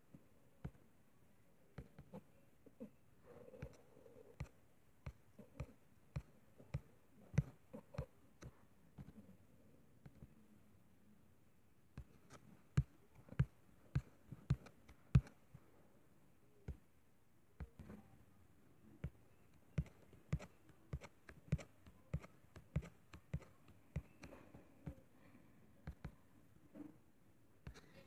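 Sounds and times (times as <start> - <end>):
fingertip tapping touchscreen: 3.6 - 9.2, 12.0 - 15.4, 19.0 - 25.0, 25.8 - 26.2.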